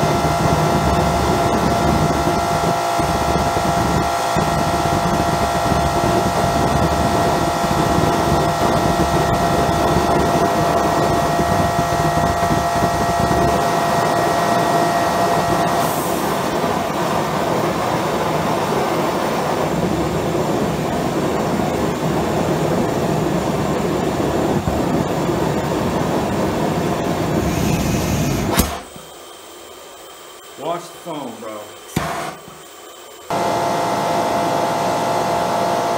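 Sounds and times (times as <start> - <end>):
compressed-air jet burner rushing: 0.0 - 35.9
sharp pop: 28.4 - 29.0, 31.9 - 32.4.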